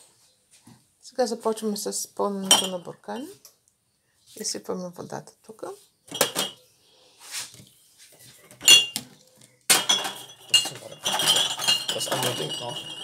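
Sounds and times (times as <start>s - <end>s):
glass jars clinking: 2.4s - 2.9s, 6.1s - 6.6s, 8.5s - 9.1s, 9.7s - 13.0s.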